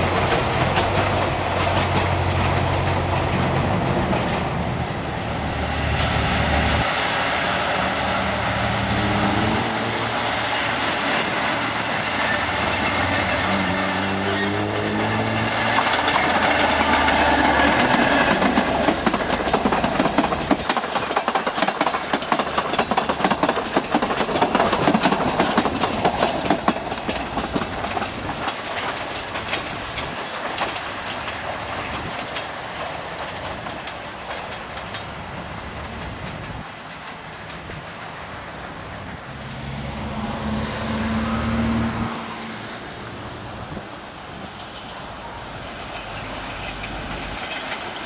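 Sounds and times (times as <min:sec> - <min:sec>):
train wheels clickety-clack: 0:00.0 - 0:05.1, 0:05.7 - 0:48.0
diesel locomotive engine running: 0:00.0 - 0:48.0.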